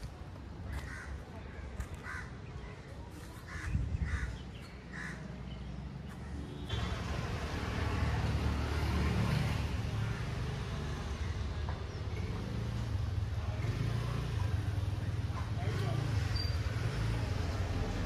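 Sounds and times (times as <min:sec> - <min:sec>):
steady background noise: 0:00.0 - 0:18.0
crow cawing: 0:00.7 - 0:01.2, 0:02.0 - 0:02.3, 0:04.9 - 0:05.2.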